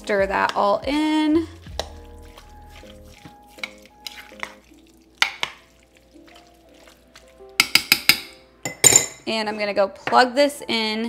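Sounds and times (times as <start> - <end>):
metal spoon stirring beans: 1.6 - 8.4
spoon clinking: 1.8 - 6.9, 7.6 - 9.2.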